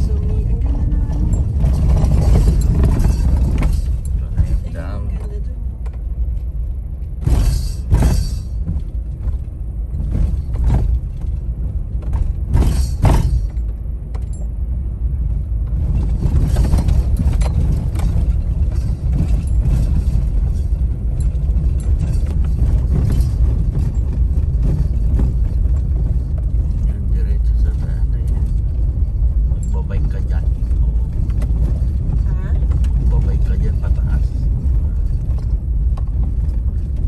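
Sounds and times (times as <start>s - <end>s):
car cabin low rumble: 0.0s - 37.0s.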